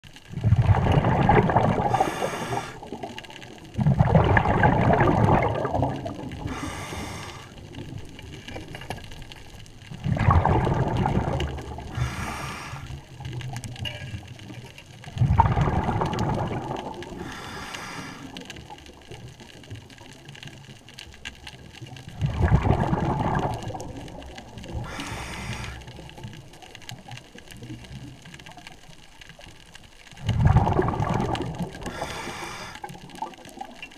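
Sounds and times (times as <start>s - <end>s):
exhaled bubbles rushing: 0.2s - 8.6s, 9.7s - 13.8s, 14.4s - 19.9s, 21.9s - 28.2s, 30.1s - 33.9s
regulator inhale hiss: 1.9s - 3.0s, 6.4s - 7.6s, 11.9s - 13.1s, 17.1s - 18.6s, 24.7s - 26.1s, 31.8s - 33.0s.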